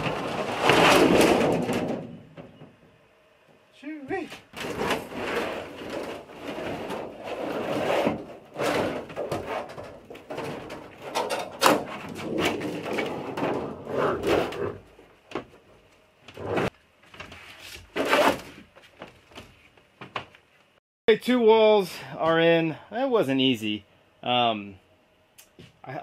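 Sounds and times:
metal panel scraping on plywood: 0.0s - 2.3s, 4.6s - 14.8s.

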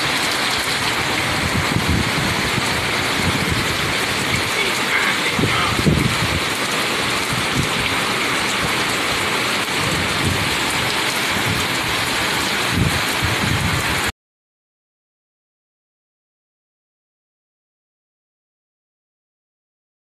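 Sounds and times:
heavy rain pouring: 0.0s - 14.1s.

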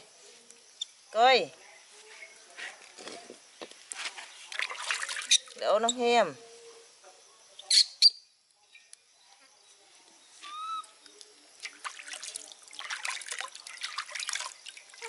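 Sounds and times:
water splashing in a metal basin: 4.5s - 5.6s, 11.6s - 15.0s
short high-pitched calls: 10.4s - 11.0s.

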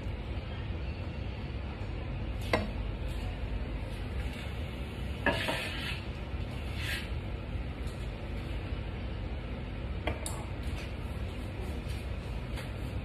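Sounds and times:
steady low hum: 0.0s - 13.0s
metal scrape: 5.2s - 7.1s.

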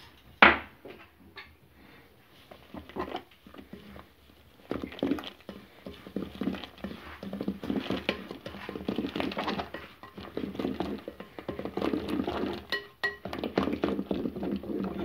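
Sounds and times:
whisk tapping in bowl: 2.6s - 15.0s.

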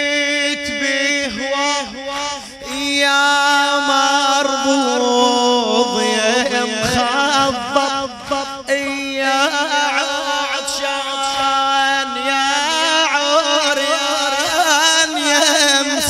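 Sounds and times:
man chanting a lament: 0.0s - 16.0s.

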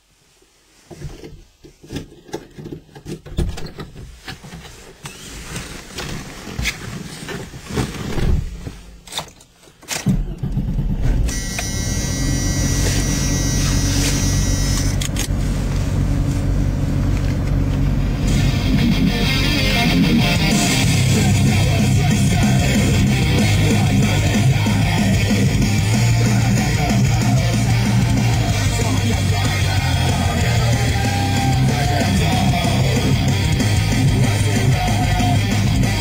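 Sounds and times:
guitar rock music: 18.1s - 36.0s.

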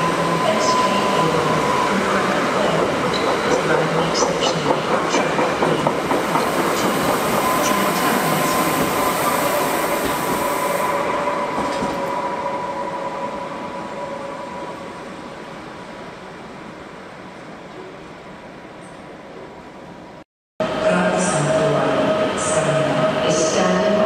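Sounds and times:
train high whine: 0.0s - 17.3s.

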